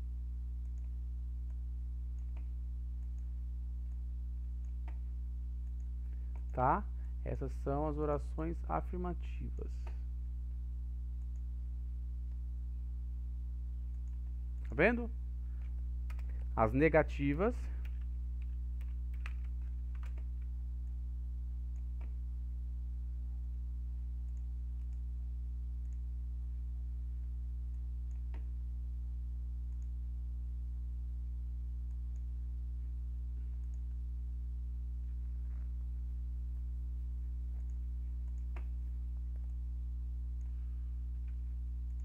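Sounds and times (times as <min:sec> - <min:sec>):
low electrical hum: 0:00.0 - 0:42.0
keyboard and mouse clicks: 0:00.6 - 0:03.3, 0:04.6 - 0:06.6, 0:15.6 - 0:16.5, 0:17.8 - 0:20.5, 0:28.1 - 0:28.5, 0:37.5 - 0:39.6.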